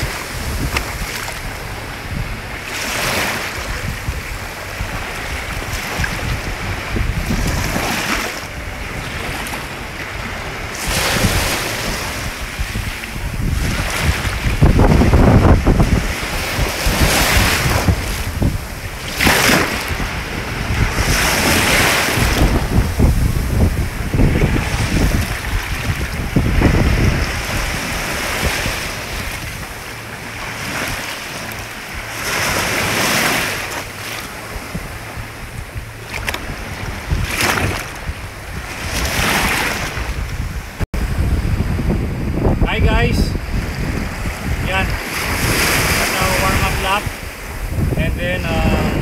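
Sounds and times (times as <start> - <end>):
waves washing onto beach: 0.0 - 49.0
wind buffeting microphone: 0.0 - 49.0.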